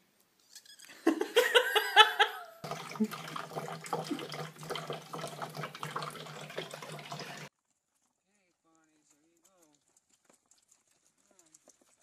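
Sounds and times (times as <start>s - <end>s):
cat drinking: 2.6s - 7.5s, 9.0s - 12.0s
water running from spout: 2.6s - 7.5s.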